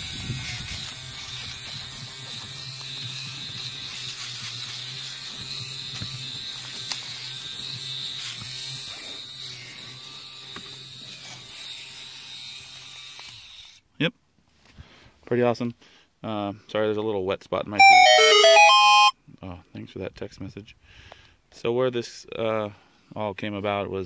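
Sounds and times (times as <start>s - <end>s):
shaver rubbing on upholstery: 0.0s - 13.0s.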